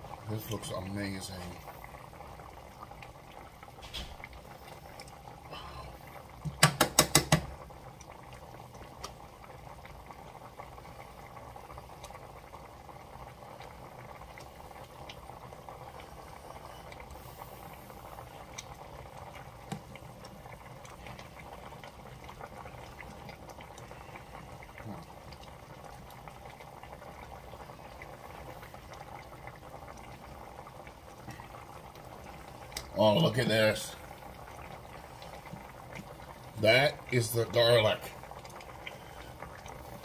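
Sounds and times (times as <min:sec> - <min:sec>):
liquid boiling in a pan: 0:00.0 - 0:40.0.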